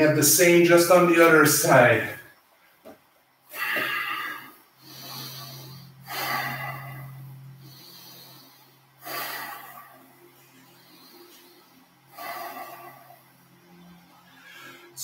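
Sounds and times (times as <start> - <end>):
person breathing deeply: 3.5 - 15.0.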